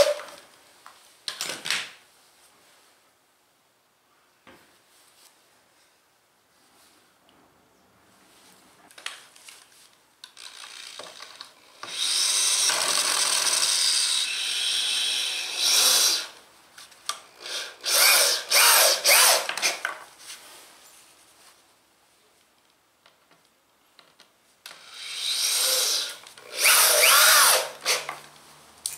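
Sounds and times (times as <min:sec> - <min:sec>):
power drill drilling into wood: 0:00.0 - 0:00.2, 0:11.8 - 0:16.4, 0:17.4 - 0:19.8, 0:24.8 - 0:28.1.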